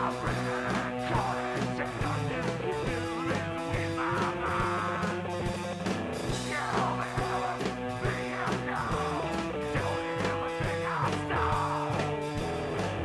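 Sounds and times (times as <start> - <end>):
rock music with guitar: 0.0 - 13.0.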